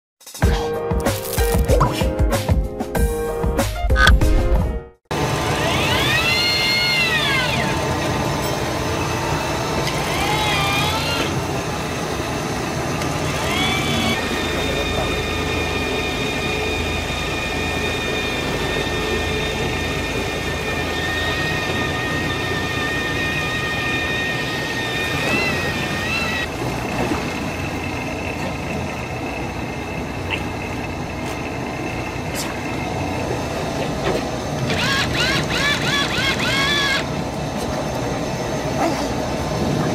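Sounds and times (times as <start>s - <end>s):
engine rumble: 4.0s - 39.9s
electric fishing reel motor whining: 9.8s - 11.5s, 13.2s - 26.5s, 34.6s - 37.2s.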